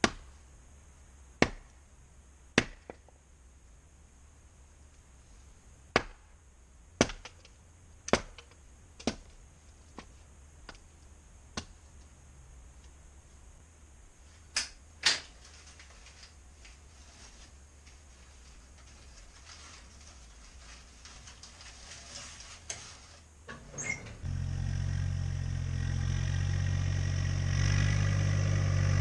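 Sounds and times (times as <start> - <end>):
axe chopping firewood: 0.0 - 0.3, 1.4 - 1.8, 2.6 - 3.1, 5.9 - 6.4, 7.0 - 9.3, 11.6 - 11.8.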